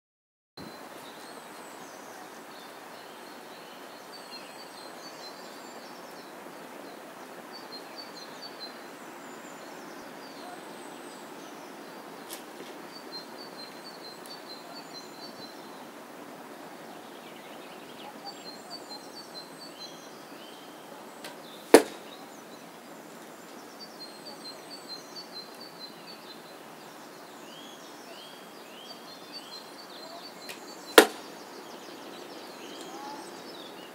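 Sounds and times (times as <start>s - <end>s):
birds chirping: 0.6s - 33.9s
steady outdoor hiss: 0.6s - 33.9s
arrow striking target: 21.2s - 22.1s, 31.0s - 31.3s.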